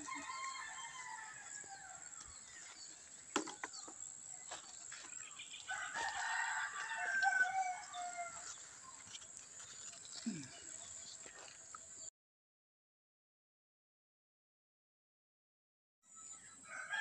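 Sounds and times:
rooster crowing: 0:00.0 - 0:02.2, 0:05.7 - 0:08.5, 0:16.6 - 0:17.0.

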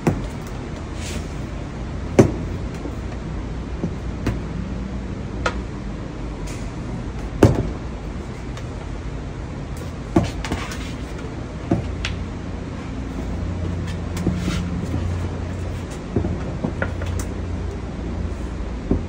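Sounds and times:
steady low hum: 0:00.0 - 0:19.0
wooden boards knocking: 0:02.1 - 0:03.1, 0:07.4 - 0:07.8.

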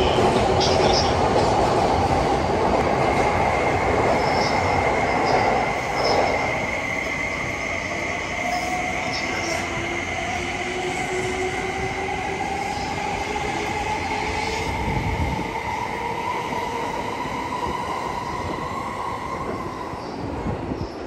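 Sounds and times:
wheels rumbling on rail: 0:00.0 - 0:07.2.

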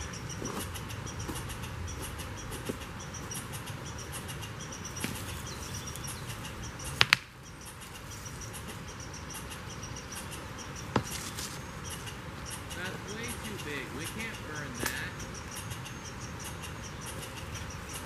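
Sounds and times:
steady outdoor hiss: 0:00.0 - 0:18.0
sharp clicks: 0:12.0 - 0:18.0.

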